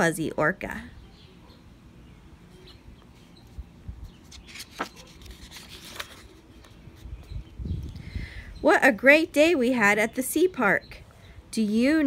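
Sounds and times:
book page turning: 4.2s - 7.1s.

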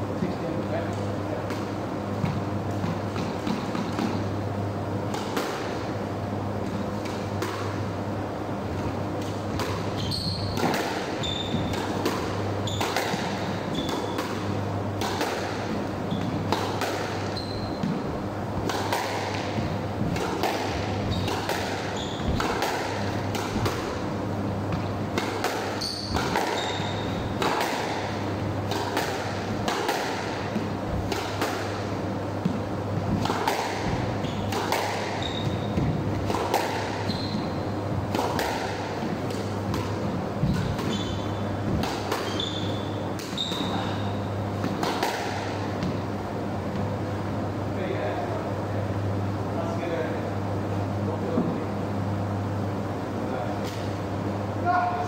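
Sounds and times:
squash ball hits: 5.1s - 5.9s, 9.2s - 46.0s
shoes squeaking on wooden floor: 9.9s - 10.6s, 11.2s - 11.7s, 17.2s - 18.0s, 21.0s - 23.6s, 25.7s - 27.3s, 33.8s - 36.0s, 36.9s - 37.6s, 40.4s - 44.0s.

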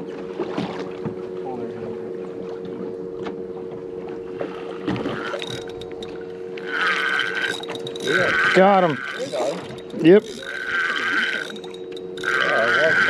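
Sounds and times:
boat engine humming: 0.0s - 13.0s
fishing reel whirring: 4.4s - 13.0s.

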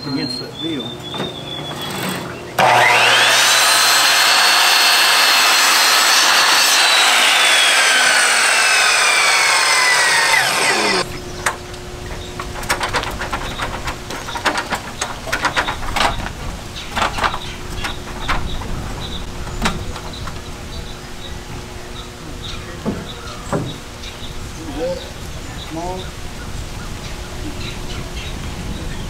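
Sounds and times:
electric saw cutting wood: 1.9s - 11.1s.

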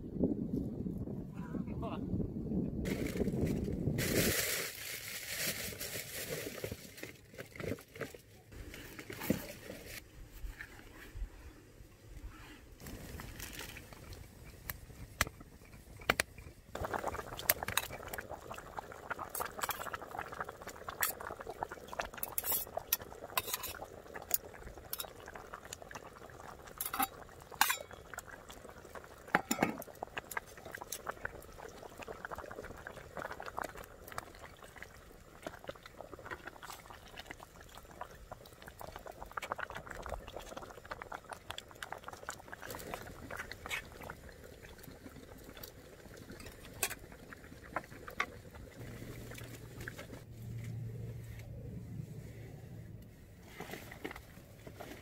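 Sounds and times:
pot bubbling and hissing: 2.8s - 55.0s.

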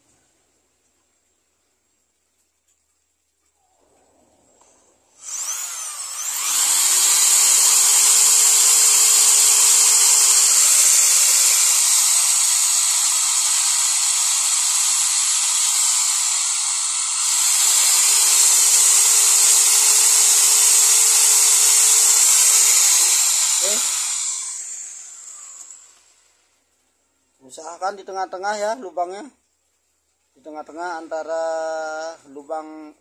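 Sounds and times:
electric drill boring wood: 5.2s - 26.3s.

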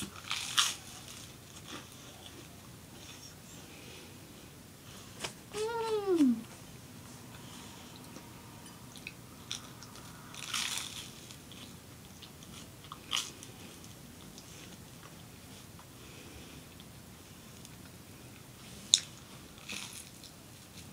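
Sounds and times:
toast crunching: 0.0s - 2.5s, 8.1s - 14.5s.

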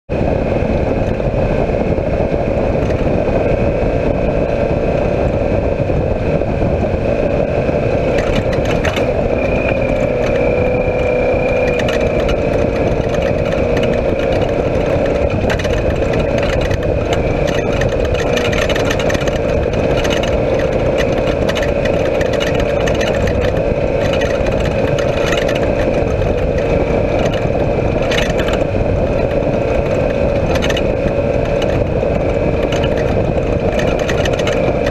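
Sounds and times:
engine running steadily: 0.1s - 34.9s
chassis knocks and rattles: 8.1s - 34.9s.

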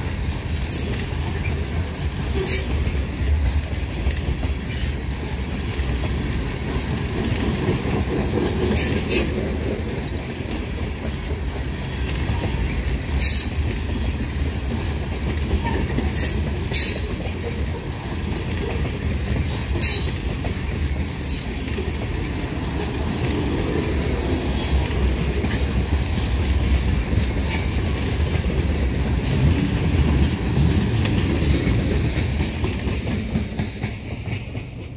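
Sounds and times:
train wheels rumbling on rail: 0.0s - 34.9s.

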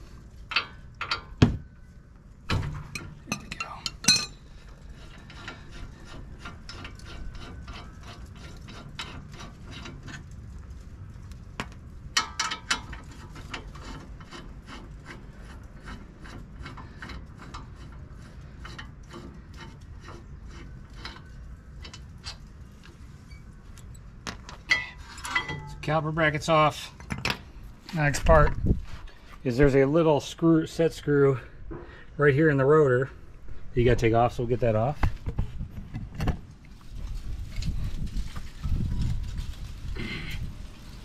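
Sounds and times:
metal clinks: 2.9s - 4.4s.

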